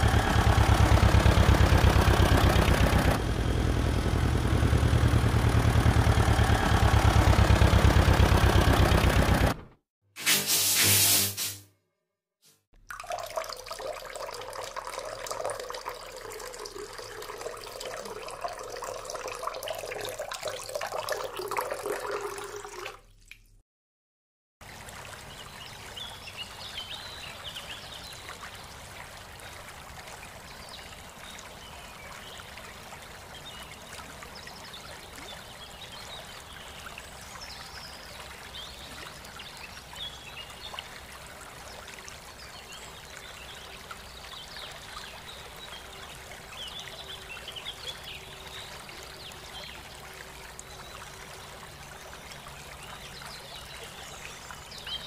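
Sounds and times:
water running from pipe: 10.2s - 11.6s, 12.8s - 23.1s
water trickling into tank: 12.8s - 23.6s, 28.4s - 55.0s.

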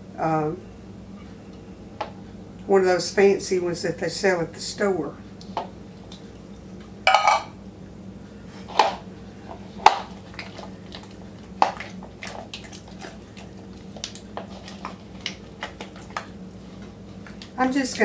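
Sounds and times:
spatula knocking against bowl: 7.1s - 7.5s
soft scraping and squishing: 8.4s - 17.6s.

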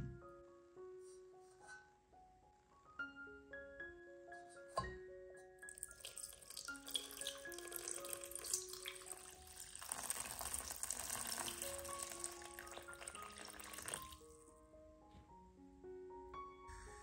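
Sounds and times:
light music with mallet notes: 0.0s - 17.0s
water pouring into metal pot: 5.7s - 14.2s.

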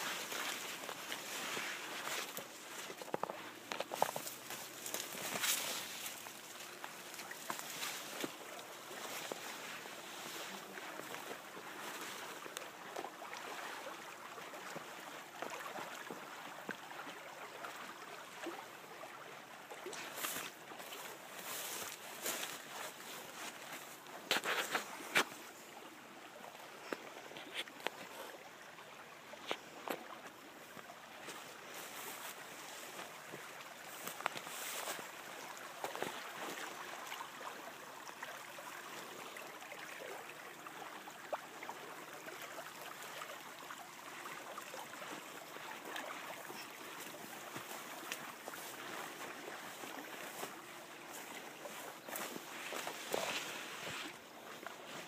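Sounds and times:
weeds rustling and snapping: 0.0s - 8.4s
footsteps: 0.0s - 12.4s, 20.0s - 25.4s, 46.5s - 55.0s.

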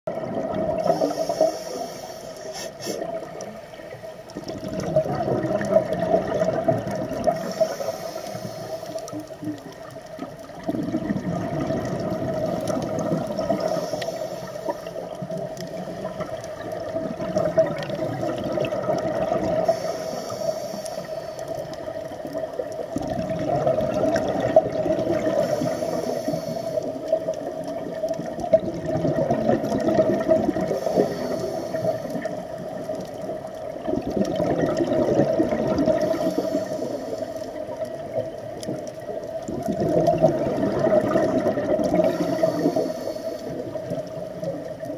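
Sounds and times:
bubbles bursting underwater: 0.1s - 1.2s, 4.4s - 7.6s, 9.4s - 13.9s, 14.9s - 19.8s, 21.9s - 25.8s, 26.8s - 31.1s, 32.1s - 36.4s, 37.9s - 42.7s
scuba regulator hissing: 0.9s - 3.1s.

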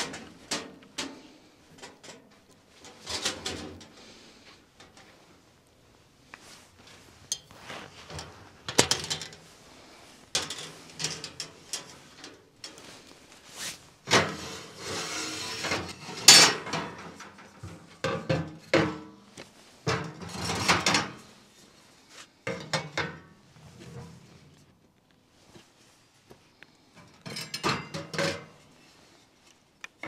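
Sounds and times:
metal stove pipes clattering: 0.0s - 5.3s, 6.8s - 9.6s, 10.2s - 13.1s, 14.0s - 21.3s, 22.5s - 24.6s, 27.0s - 28.6s.

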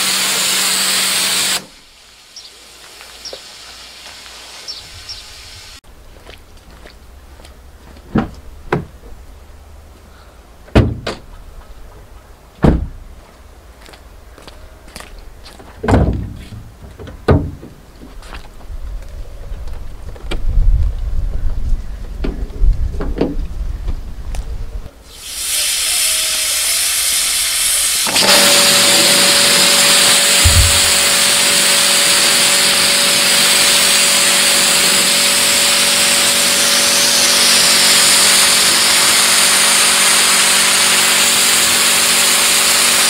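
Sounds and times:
car door heavy thuds: 8.1s - 8.9s, 10.7s - 11.2s, 12.6s - 13.0s, 15.8s - 16.6s, 30.4s - 30.9s
car door latch clunks: 10.7s - 11.2s, 12.6s - 13.0s
pressure washer spray hissing: 25.1s - 40.4s
steady hum: 30.0s - 31.6s.

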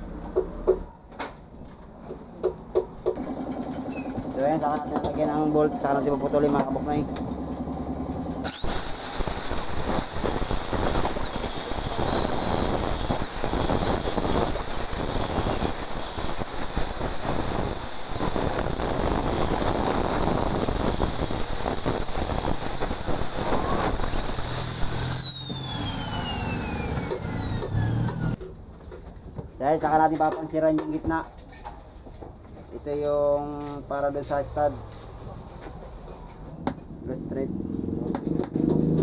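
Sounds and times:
angle grinder whining: 3.1s - 28.4s.

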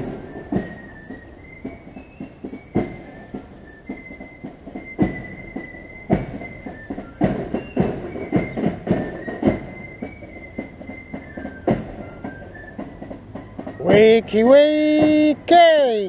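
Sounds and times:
flutes playing a high tune: 0.0s - 16.0s
sharp drum beats: 6.1s - 9.8s, 12.8s - 16.0s.

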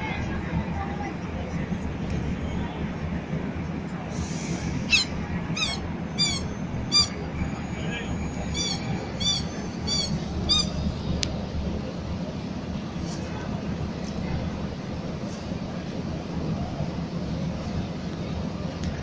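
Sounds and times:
murmur of street crowd: 0.0s - 19.0s
short high-pitched squeaks: 4.9s - 7.2s, 8.4s - 10.8s.

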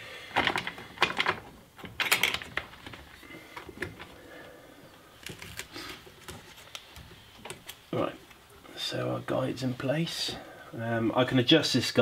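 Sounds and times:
hands rustling tape: 0.3s - 8.6s.

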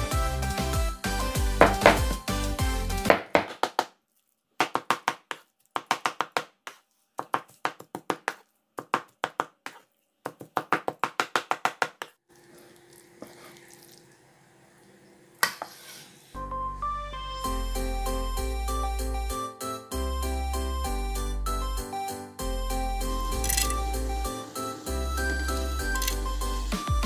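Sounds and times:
cleaver chopping meat on wood: 1.6s - 2.2s, 3.0s - 3.9s
scraping on cutting board: 15.4s - 16.3s.

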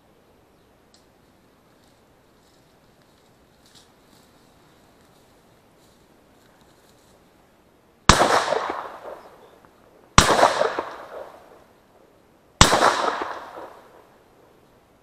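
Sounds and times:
shotgun shots with echo: 8.1s - 9.4s, 10.2s - 11.6s, 12.6s - 14.1s.

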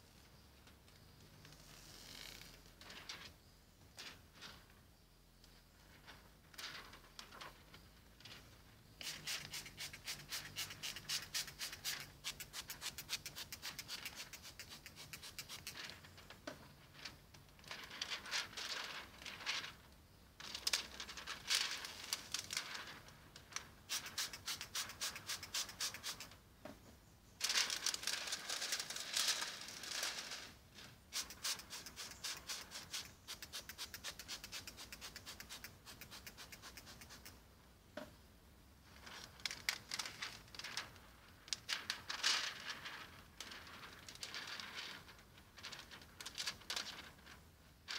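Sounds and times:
rubbing strokes on window glass: 5.9s - 19.8s, 20.5s - 26.4s, 27.4s - 37.4s.

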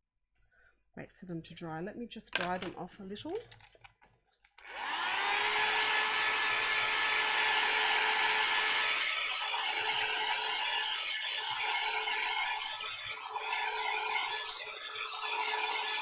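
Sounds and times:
blow dryer whine and blowing: 4.6s - 16.0s.

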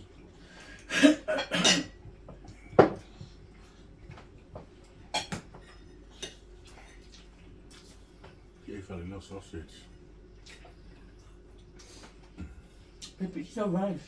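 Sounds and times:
cutlery clinking on plates: 5.1s - 7.1s.

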